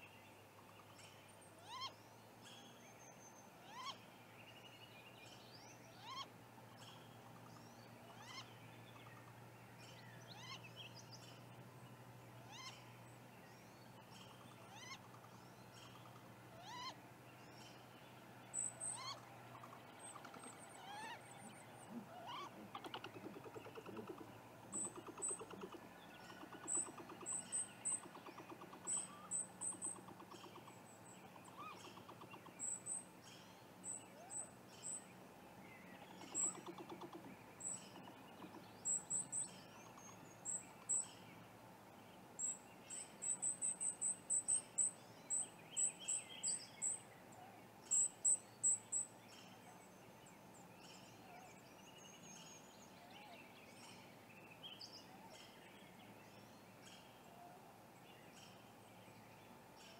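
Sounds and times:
rapid pulsing bird call: 18.6s - 33.0s, 36.0s - 41.1s.

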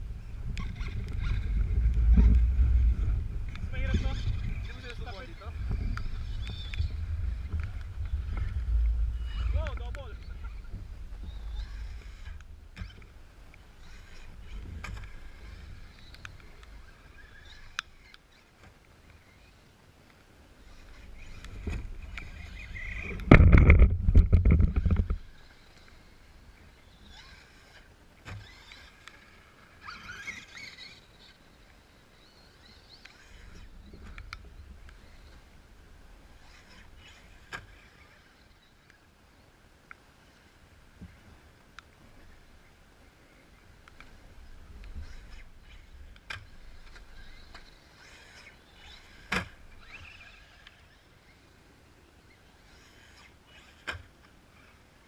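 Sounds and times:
rc truck motor whine: 0.0s - 13.1s, 13.7s - 18.5s, 20.6s - 39.0s, 43.9s - 51.5s, 52.2s - 54.8s
wind rumble on microphone: 0.0s - 17.8s, 20.6s - 27.8s
toy truck motor whining: 26.9s - 31.4s, 45.0s - 51.4s.

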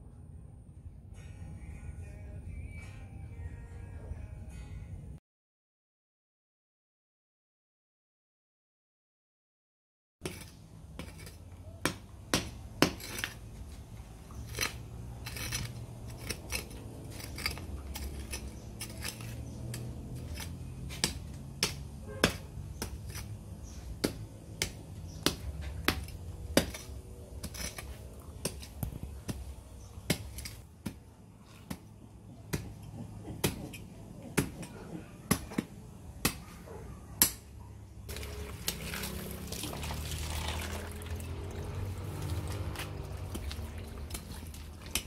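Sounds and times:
hand hoe chopping into soil: 15.4s - 33.8s, 38.1s - 40.8s, 42.0s - 45.0s.

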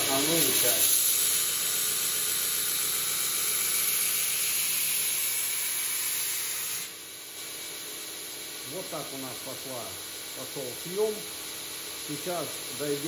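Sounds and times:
belt grinder grinding steel: 0.0s - 6.9s.

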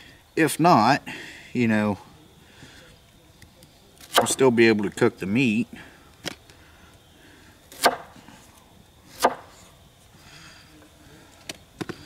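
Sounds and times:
knife chopping on wood: 4.1s - 4.4s, 7.7s - 8.1s, 9.2s - 9.5s.

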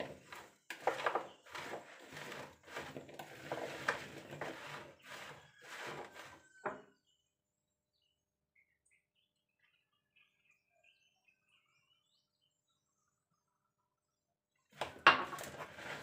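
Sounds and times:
spoon scraping plastic bowl: 0.0s - 6.8s, 14.8s - 16.0s.

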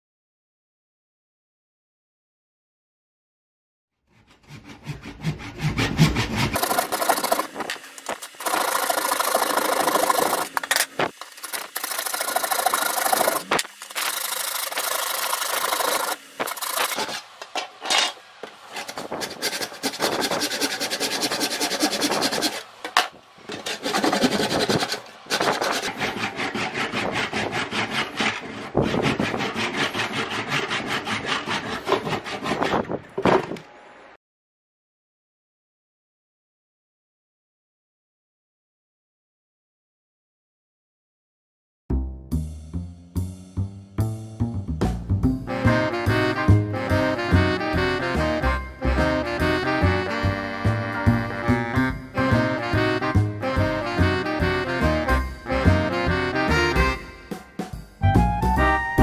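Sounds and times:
handsaw rasping through wood: 4.1s - 7.7s, 8.3s - 17.2s, 18.7s - 22.7s, 23.5s - 32.9s.

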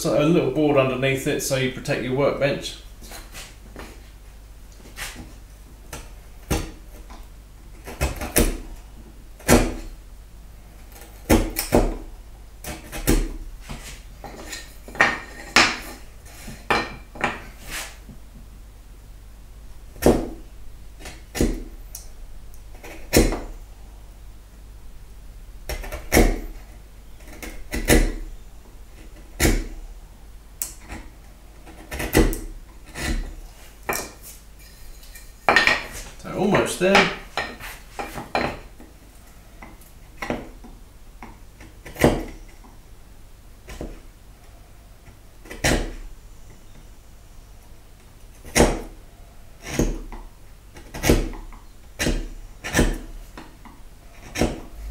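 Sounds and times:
chisel knocking and cracking wood: 5.9s - 8.7s, 9.4s - 9.9s, 10.9s - 17.5s, 20.0s - 20.4s, 21.0s - 22.1s, 22.7s - 23.6s, 25.7s - 28.3s, 29.0s - 29.8s, 30.6s - 34.2s, 35.5s - 38.9s, 39.6s - 42.8s, 43.7s - 44.1s, 45.0s - 46.1s, 48.3s - 49.0s, 49.6s - 54.7s.

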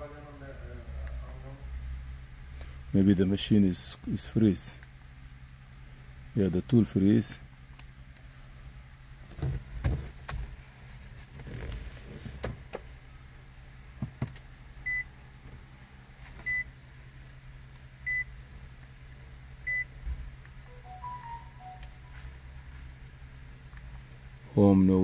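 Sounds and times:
short high electronic beeps: 20.7s - 22.2s.

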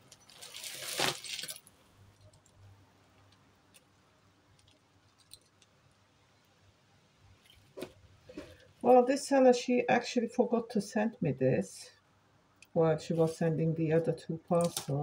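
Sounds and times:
faint necklace clicks: 1.3s - 6.6s.

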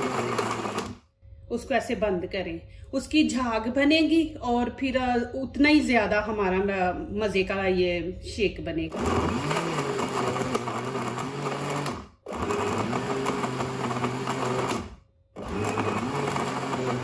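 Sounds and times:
blender running: 0.0s - 1.0s, 8.9s - 17.0s.

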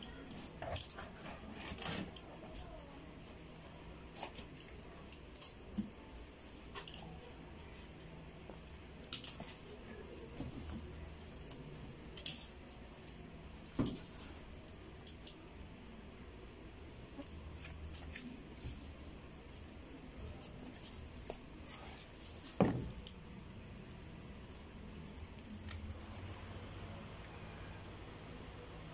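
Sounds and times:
small clicks of objects handled: 4.2s - 7.2s, 8.0s - 15.5s.

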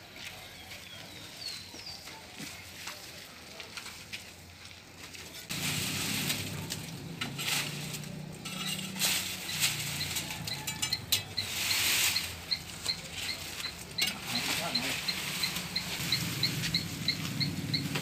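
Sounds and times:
rustling and scraping: 0.3s - 18.0s
faint high chirp: 9.4s - 18.0s.

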